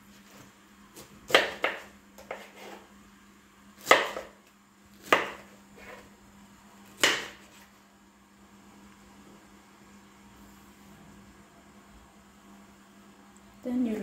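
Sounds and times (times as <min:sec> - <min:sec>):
knife chopping on wooden board: 0:01.0 - 0:02.8, 0:03.8 - 0:04.4, 0:05.0 - 0:06.0, 0:07.0 - 0:07.6.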